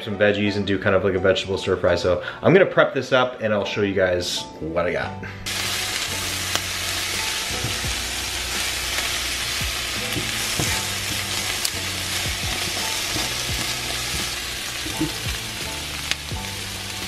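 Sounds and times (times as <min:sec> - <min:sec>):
stir-fry sizzling in a pan: 0:05.5 - 0:17.0.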